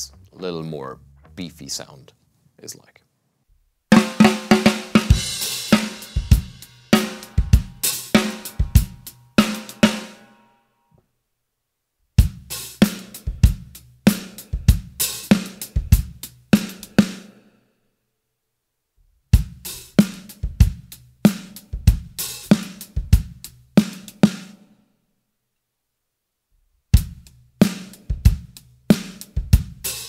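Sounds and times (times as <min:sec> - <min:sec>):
drum kit groove: 0:00.0 - 0:02.1, 0:03.9 - 0:10.2, 0:12.2 - 0:17.4, 0:19.4 - 0:24.6, 0:27.0 - 0:30.0.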